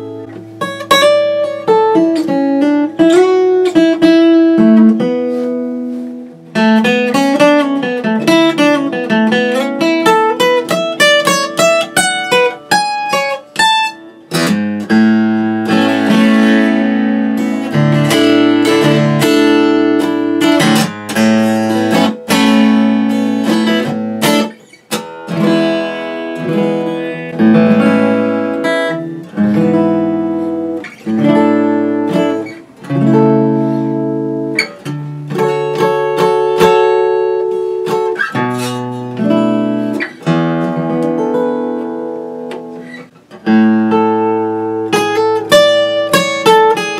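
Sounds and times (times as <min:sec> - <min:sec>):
acoustic guitar strummed chords: 0:00.0 - 0:46.9
acoustic guitar single-note runs: 0:06.5 - 0:46.9.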